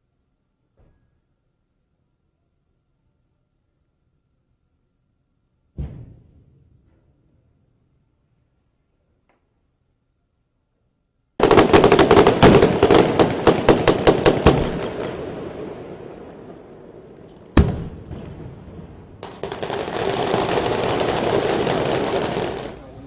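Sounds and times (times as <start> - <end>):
pyrotechnic bangs: 11.4 - 22.8.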